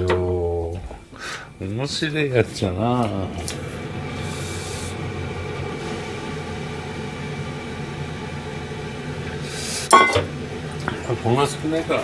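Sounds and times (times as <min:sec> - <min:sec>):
machine drone with hiss: 0:02.8 - 0:12.0.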